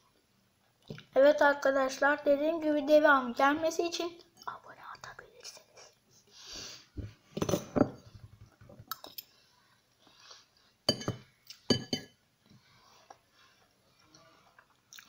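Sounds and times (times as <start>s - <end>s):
fork clinking on ceramic bowl: 10.9s - 12.1s.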